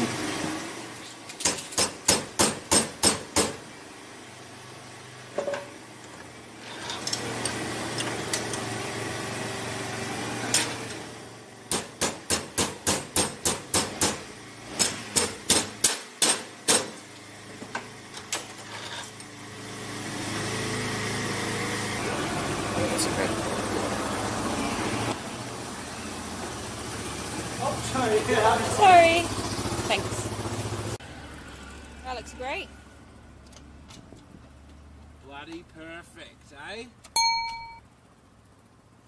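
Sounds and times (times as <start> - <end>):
hammer striking metal: 1.4 - 3.6, 11.7 - 14.2, 37.2 - 37.8.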